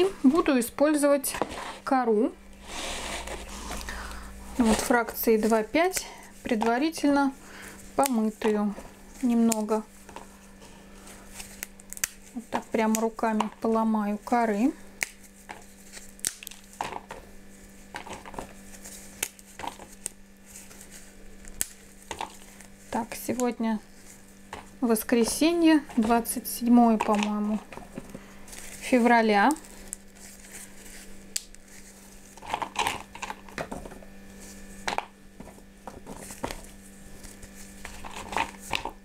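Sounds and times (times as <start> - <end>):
bark cracking and snapping by hand: 11.5 - 13.5, 15.0 - 17.2, 21.4 - 22.7, 32.4 - 33.9.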